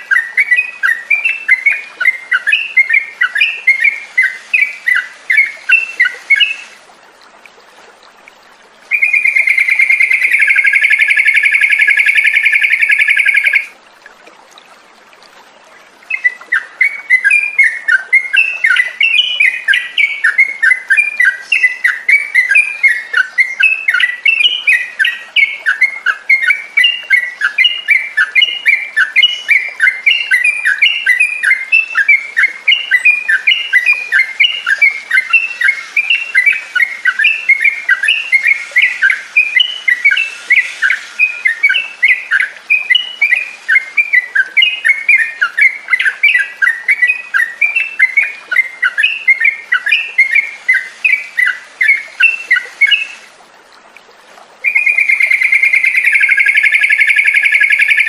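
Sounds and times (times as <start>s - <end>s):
bird chattering song: 8.9s - 13.7s, 54.7s - 58.0s.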